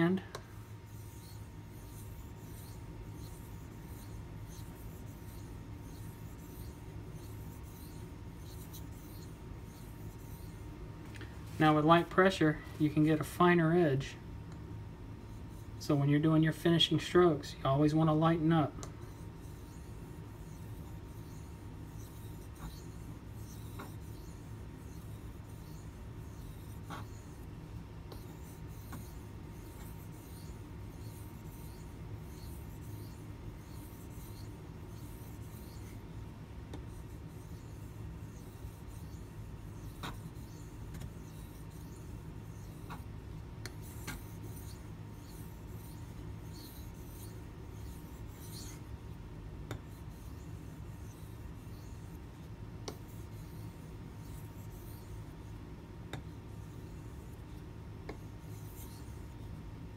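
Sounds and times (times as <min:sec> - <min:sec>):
knife scraping on whetstone: 0:00.5 - 0:10.6, 0:19.0 - 0:27.5, 0:28.1 - 0:36.1, 0:36.8 - 0:49.0.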